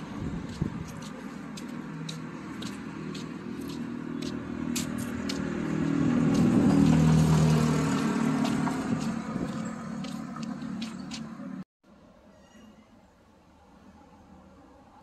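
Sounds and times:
footsteps on pavement: 0.0s - 11.6s
vehicle engine hum passing: 0.0s - 11.6s.

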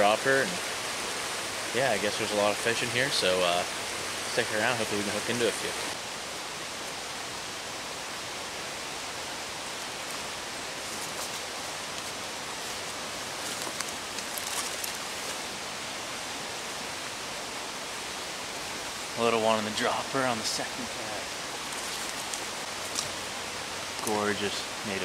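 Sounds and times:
stream flowing: 0.0s - 25.0s
faint rustles: 10.0s - 15.5s, 21.5s - 23.2s.

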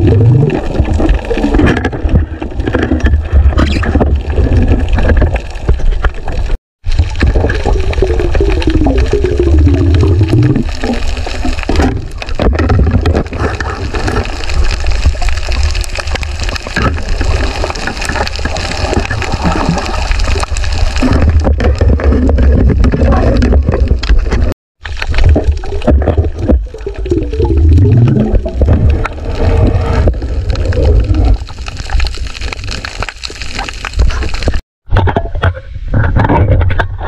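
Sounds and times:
bubbling: 0.0s - 34.6s
underwater water rush: 0.0s - 34.6s
small crackling clicks: 0.4s - 34.6s.

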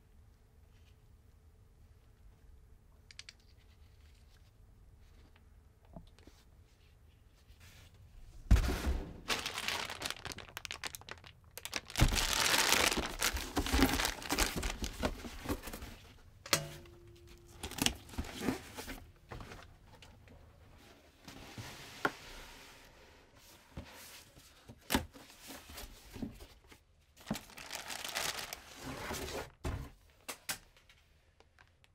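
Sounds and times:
thump: 8.5s - 9.3s
plastic bag crinkling: 9.2s - 15.8s, 17.5s - 18.4s, 27.2s - 28.8s.

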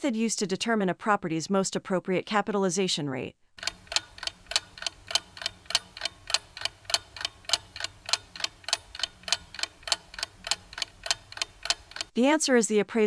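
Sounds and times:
rapid clock ticking: 3.6s - 12.2s.

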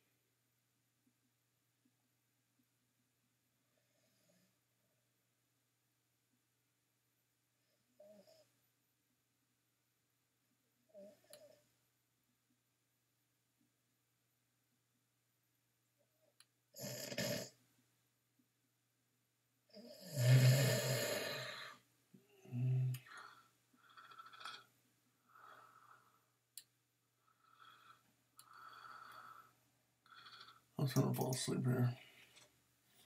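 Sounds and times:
man snoring: 16.8s - 17.5s, 19.8s - 24.7s, 27.4s - 29.5s, 30.1s - 30.6s
hums and mumbles: 22.2s - 23.2s.

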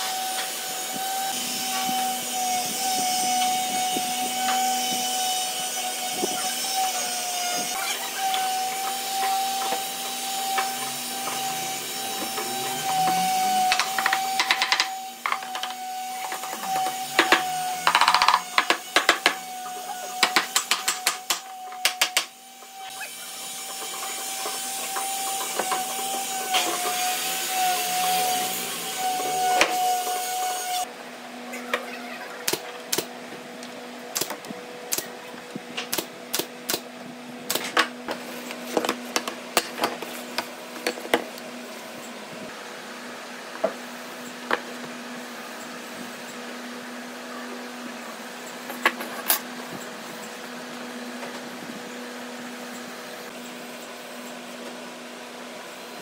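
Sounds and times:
nail gun snapping: 34.1s - 34.3s.

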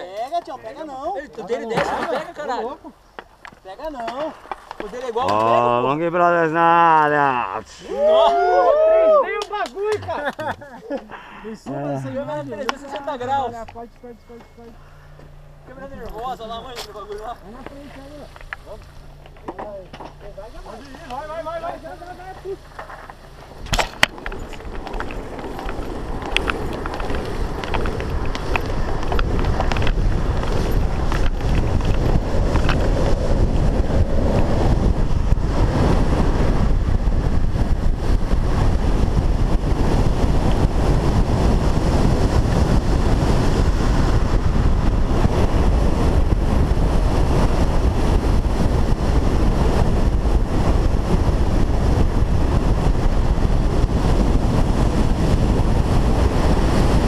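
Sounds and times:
longboard wheels rumbling on asphalt: 15.1s - 57.0s
wind blasting over microphone: 15.7s - 57.0s.

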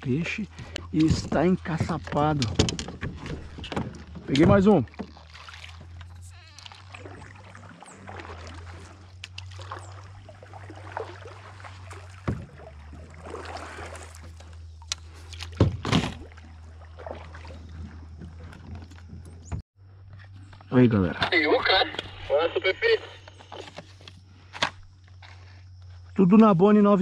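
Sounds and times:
paddle splashing in water: 0.3s - 19.2s
paddle knocking plastic hull: 0.6s - 7.4s, 8.0s - 14.4s.

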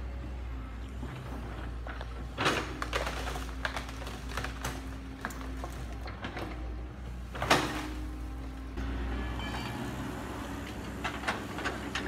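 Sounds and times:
excavator diesel engine running: 0.0s - 12.0s
brush and bamboo cracking: 1.8s - 6.6s.

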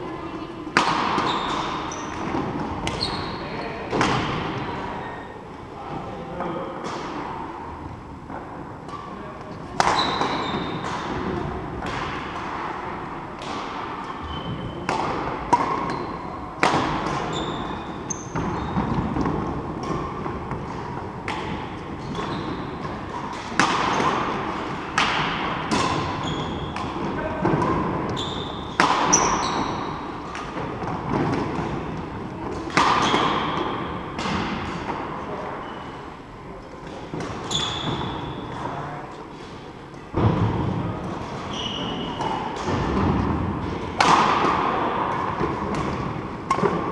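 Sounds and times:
rackets striking shuttlecock: 0.8s - 3.2s, 13.4s - 35.0s, 44.0s - 46.9s
shoes squeaking on wooden court: 1.1s - 3.9s, 8.9s - 11.4s, 14.0s - 14.9s, 15.5s - 21.1s, 21.9s - 24.5s, 25.7s - 33.9s, 34.7s - 36.2s, 36.8s - 38.8s, 41.3s - 43.0s.

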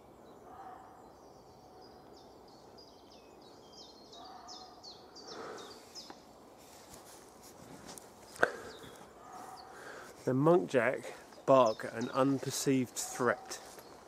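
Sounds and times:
distant deer barks: 0.4s - 2.1s, 4.1s - 5.6s, 8.4s - 10.1s, 12.9s - 13.8s.

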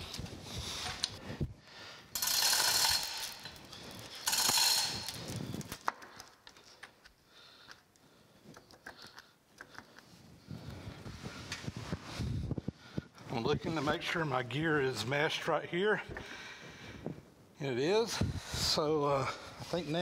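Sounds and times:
rapid metallic ratcheting: 2.1s - 5.8s.

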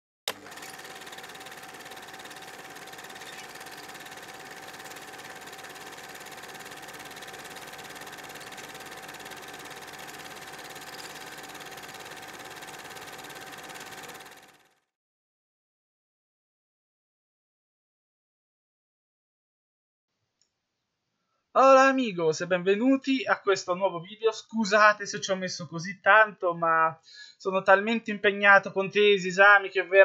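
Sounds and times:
projector hum: 0.3s - 14.4s
film projector clatter: 0.3s - 14.8s.

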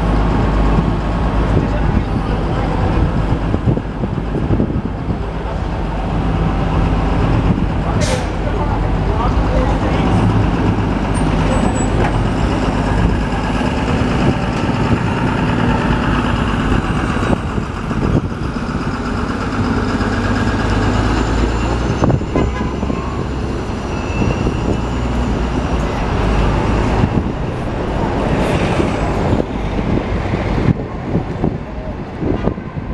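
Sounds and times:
bus engine pulling away: 0.0s - 32.9s
street traffic noise: 0.0s - 32.9s.

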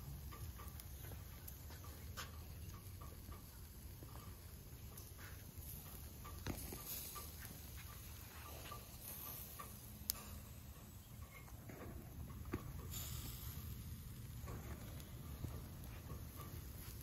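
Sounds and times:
skewers grilling over charcoal: 0.0s - 17.0s.

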